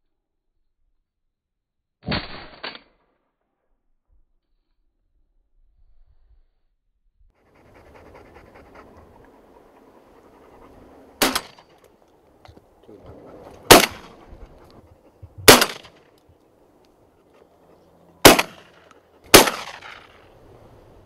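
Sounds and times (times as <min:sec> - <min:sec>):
shotgun shots: 0:11.2 - 0:11.6, 0:13.6 - 0:14.2, 0:15.4 - 0:16.0, 0:18.2 - 0:20.3.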